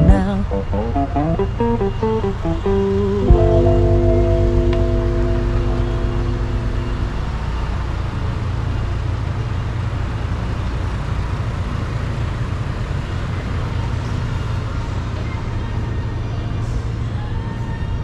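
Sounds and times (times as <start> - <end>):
song playing: 0.0 - 7.9
street traffic rumble: 0.0 - 18.0.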